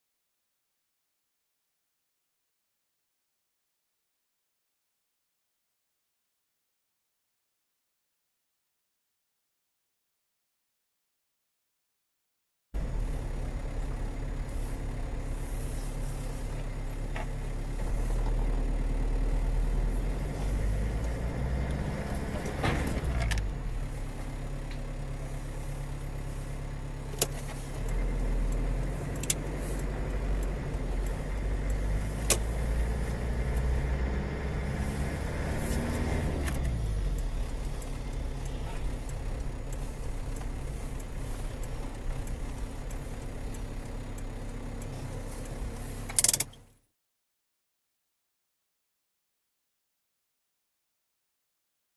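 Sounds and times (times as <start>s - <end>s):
car engine: 12.8s - 46.9s
road noise inside car: 12.8s - 46.9s
sharp clicks: 27.1s - 33.8s, 35.1s - 46.7s.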